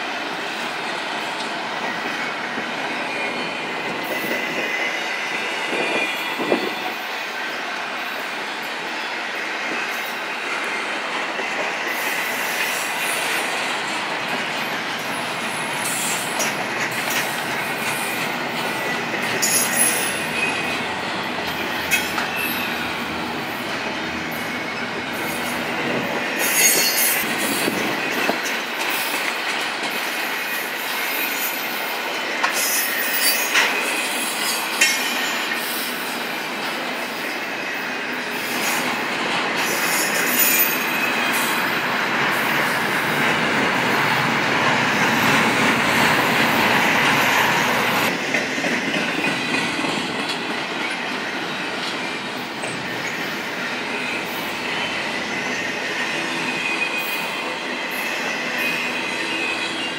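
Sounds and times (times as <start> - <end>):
freight train wheels rumbling on track: 0.0 - 59.9
wheel squeals and clanks: 15.5 - 20.8, 21.7 - 23.0, 24.0 - 29.2, 32.4 - 35.9.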